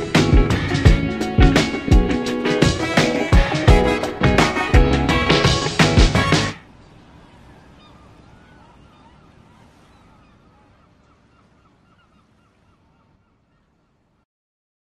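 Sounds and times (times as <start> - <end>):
surf hiss: 0.0 - 10.1
birds chirping: 0.0 - 14.2.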